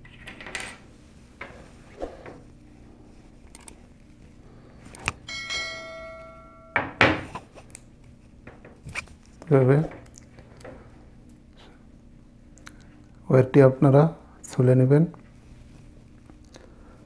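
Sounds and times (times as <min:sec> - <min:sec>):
notification bell chime: 0:05.3 - 0:06.8
tool set down clunk: 0:06.7 - 0:07.4.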